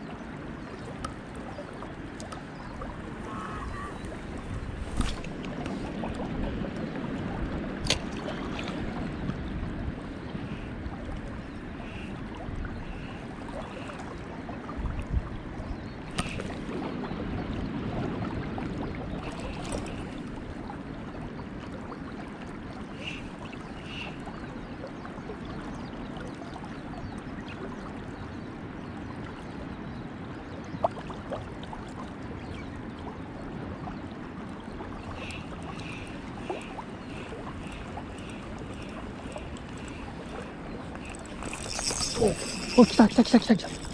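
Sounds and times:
river water rushing: 35.1s - 43.9s.

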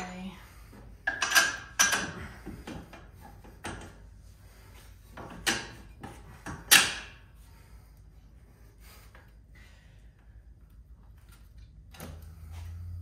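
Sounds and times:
metal parts clunking and scraping: 1.0s - 4.0s.

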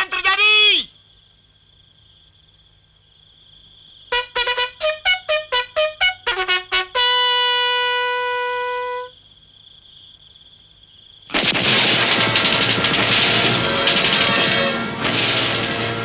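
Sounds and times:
bugle call: 4.1s - 9.2s, 11.6s - 16.0s
heavy rapid gunfire: 11.3s - 16.0s.

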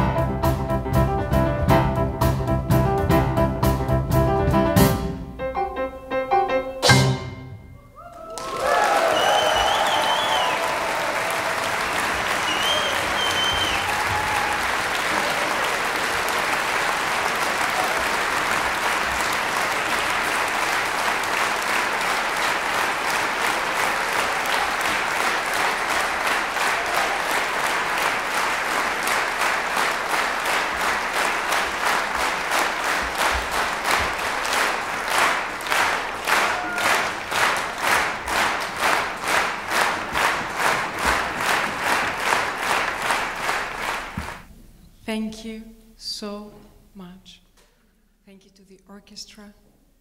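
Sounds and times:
audience applauding: 8.0s - 44.5s.

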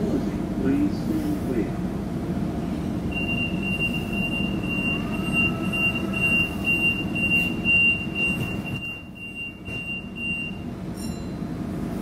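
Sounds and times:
low train rumble: 0.0s - 12.0s
rapid electronic beeping: 3.1s - 10.6s.

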